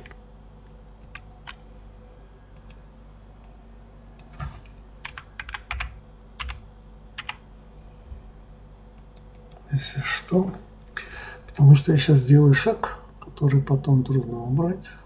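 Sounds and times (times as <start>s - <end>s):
typing on a keyboard: 4.2s - 6.6s, 7.2s - 7.4s.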